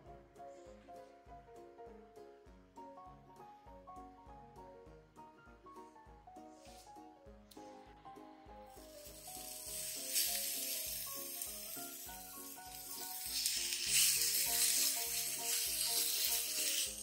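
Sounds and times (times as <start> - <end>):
food sizzling in a pan: 8.8 - 17.0.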